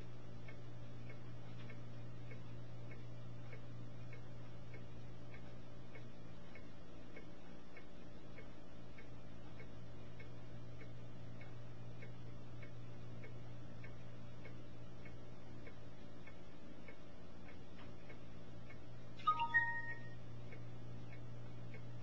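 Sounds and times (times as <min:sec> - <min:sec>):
faint regular ticking: 0:00.0 - 0:22.0
steady low hum: 0:00.0 - 0:22.0
short high beeps: 0:19.2 - 0:20.2.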